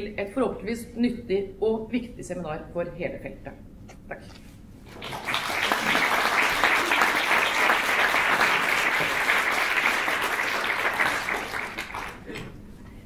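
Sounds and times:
audience applauding: 4.9 - 12.4.

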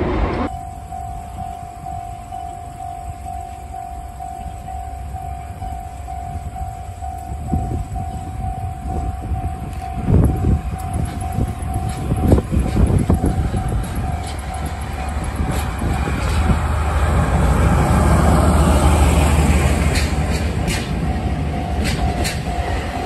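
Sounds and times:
diesel locomotive rumble: 0.0 - 23.0
train wheels thumping over joints: 9.0 - 23.0.

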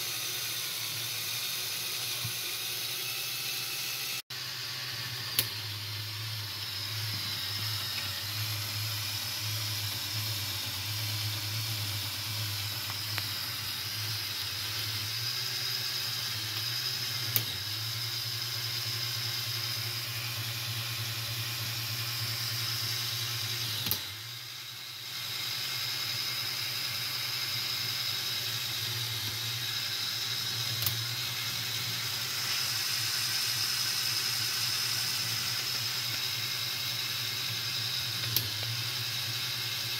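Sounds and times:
toy motor whirring gears: 0.0 - 39.9
small clicks: 38.2 - 38.8.

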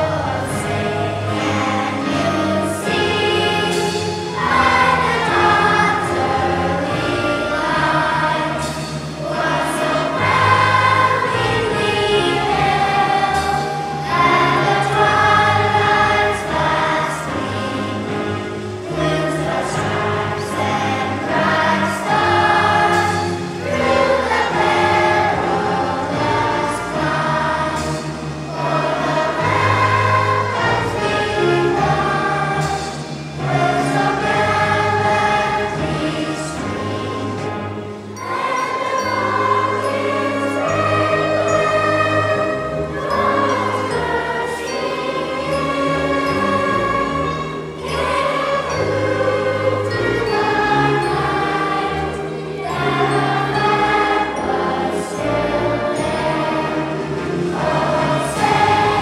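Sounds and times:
children's choir singing: 0.0 - 59.0
sustained low instrumental notes: 0.0 - 59.0.

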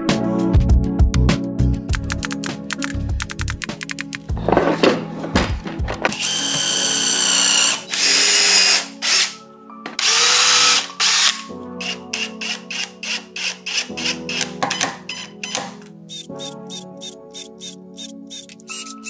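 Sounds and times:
background music with steady beat: 0.0 - 19.0
clattering knocks: 4.4 - 6.2
small electric motor running: 6.2 - 9.3.

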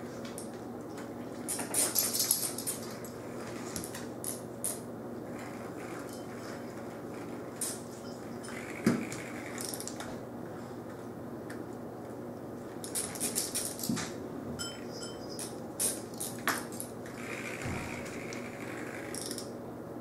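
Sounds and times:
steady low hum: 0.0 - 20.0
metallic clinking and rattling: 1.5 - 3.2.

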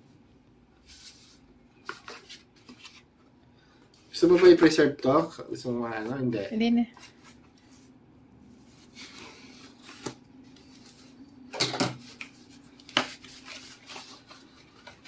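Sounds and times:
tape and cardboard rustling: 8.6 - 11.2, 11.8 - 15.0.

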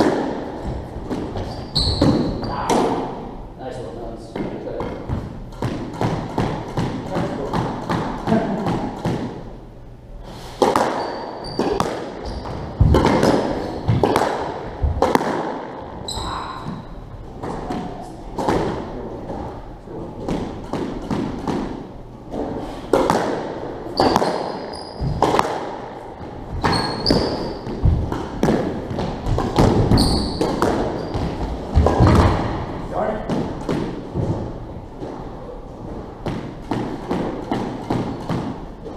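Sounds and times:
squash ball hitting racquets and walls: 0.0 - 3.4, 4.3 - 38.9
shoes squeaking on wooden floor: 0.6 - 2.7, 10.8 - 14.0, 23.9 - 25.3, 26.1 - 28.2, 28.9 - 32.2.

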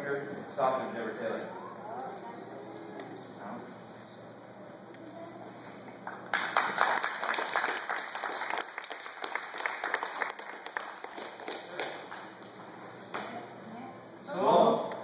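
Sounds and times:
small audience clapping: 5.9 - 13.4.

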